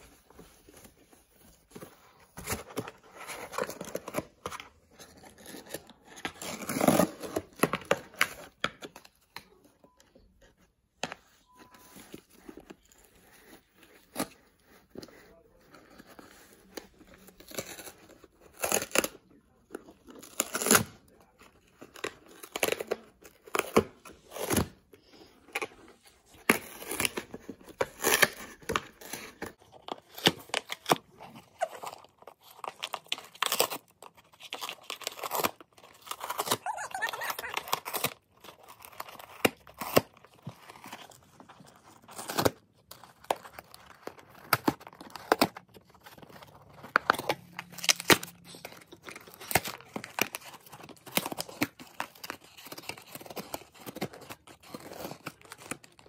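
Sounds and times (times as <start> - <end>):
dog tearing cardboard: 2.0 - 8.5, 25.4 - 56.0.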